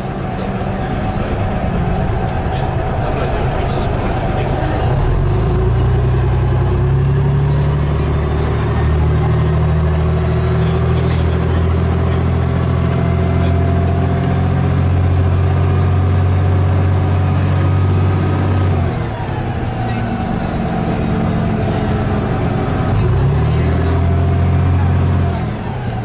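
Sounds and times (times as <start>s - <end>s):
bus diesel engine running: 0.0s - 26.0s
whine climbing in pitch: 0.0s - 26.0s.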